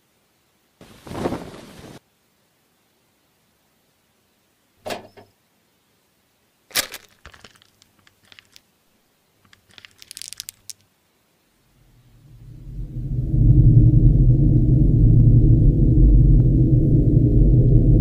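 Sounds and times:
plastic wrapper crinkling and tearing: 6.7s - 8.7s, 9.4s - 10.9s
low rumble: 11.7s - 18.0s.

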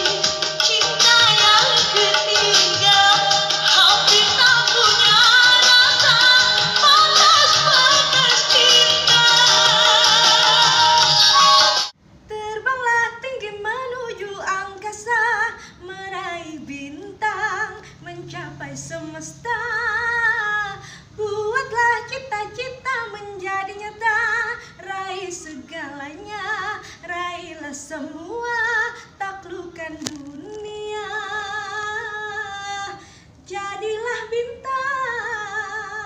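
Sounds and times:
loud stage music: 0.0s - 11.9s
woman singing unaccompanied: 0.0s - 36.0s.

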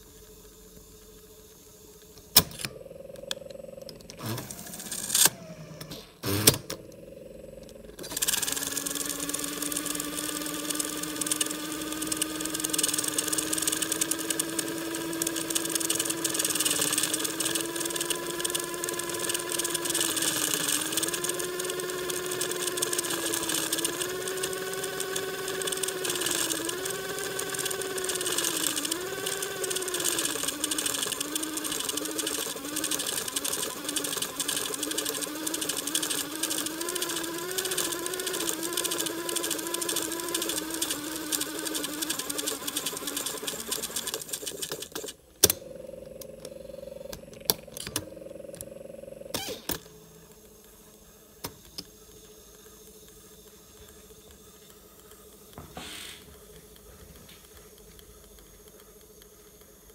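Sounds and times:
steady hum: 0.0s - 30.7s, 45.2s - 59.9s
tape drive motor whine: 0.0s - 59.9s.

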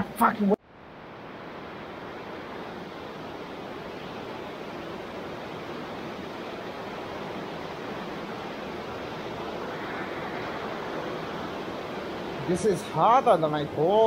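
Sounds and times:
water rushing in tunnel: 3.3s - 14.0s.

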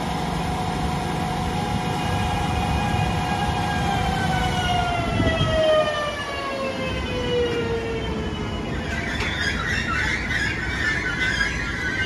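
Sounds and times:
electric train motors whining: 0.0s - 12.0s
high brake squeal: 7.7s - 12.0s.

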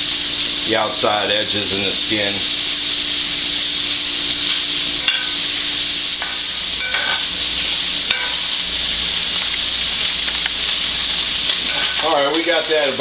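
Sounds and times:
sausage sizzling in a pan: 0.0s - 13.0s
metal spatula scraping a pan: 6.2s - 7.3s, 11.6s - 13.0s.

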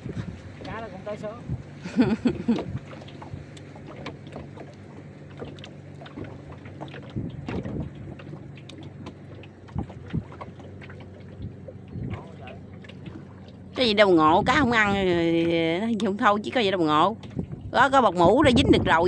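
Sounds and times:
wind on microphone: 0.0s - 3.6s, 6.2s - 10.5s, 11.3s - 12.4s, 13.0s - 19.0s
boat motor low hum: 0.0s - 19.0s.

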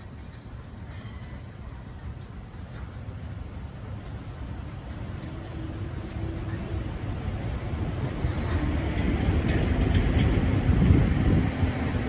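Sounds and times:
freight train rumbling: 0.0s - 12.0s
train wheel clicks: 8.9s - 10.9s.

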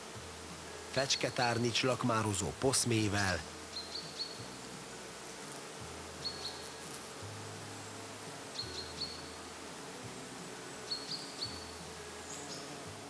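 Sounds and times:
bumblebee humming: 0.0s - 13.0s
bird chirping: 3.7s - 4.5s, 6.2s - 6.7s, 7.7s - 9.4s, 10.8s - 12.8s.

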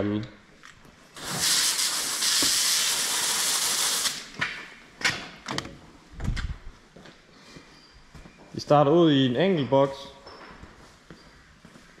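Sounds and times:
steady hiss: 1.2s - 4.4s.

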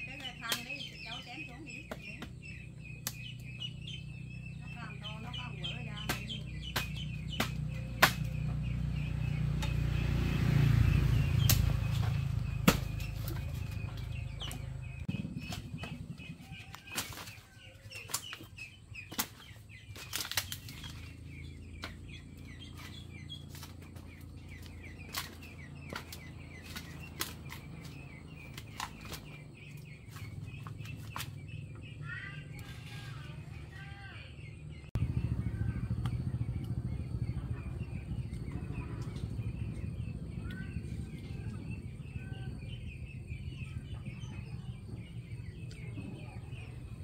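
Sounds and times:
faint bird chirping: 0.0s - 47.0s
dry bamboo sticks snapping: 0.4s - 0.8s, 3.0s - 3.6s, 6.0s - 8.6s, 11.4s - 14.7s, 16.6s - 22.0s, 22.7s - 31.4s
low rumble: 2.4s - 17.7s, 34.4s - 47.0s
rustling leaves and branches: 4.8s - 34.2s.

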